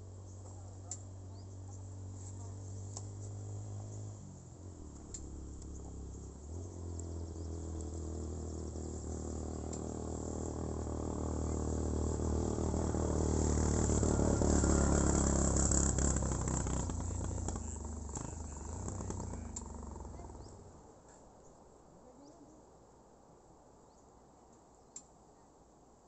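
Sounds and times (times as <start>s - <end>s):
vehicle engine passing by: 0.0s - 20.9s
insects humming: 0.1s - 20.9s.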